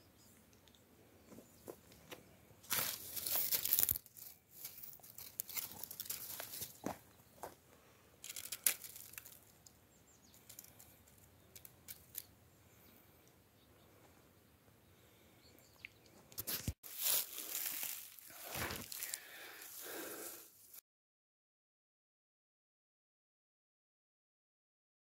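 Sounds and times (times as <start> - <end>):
dry grass rustling and crackling: 2.6 - 7.6, 8.2 - 12.3, 16.3 - 20.8.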